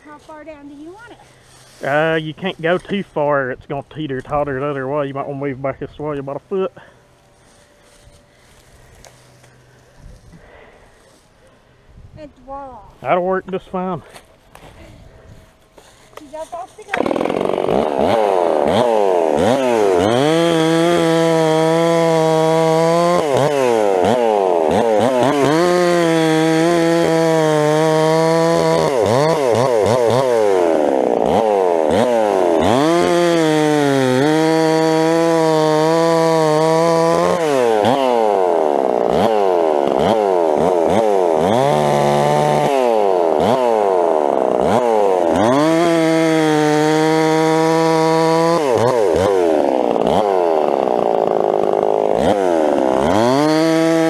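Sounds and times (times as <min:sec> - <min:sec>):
chainsaw cutting log: 0:06.8 - 0:11.2, 0:15.8 - 0:54.0.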